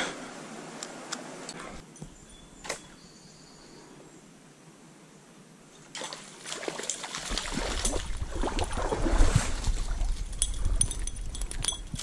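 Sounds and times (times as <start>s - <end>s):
stream water sloshing and gurgling: 5.8s - 11.7s.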